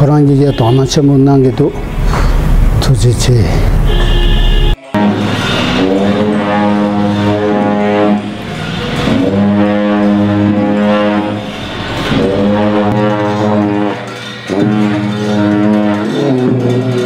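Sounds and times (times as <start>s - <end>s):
music of long held low notes: 5.0s - 17.0s.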